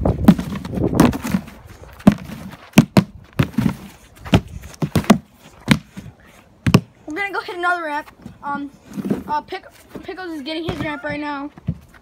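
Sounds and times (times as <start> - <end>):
sharp thumps and knocks: 0.1 - 6.9.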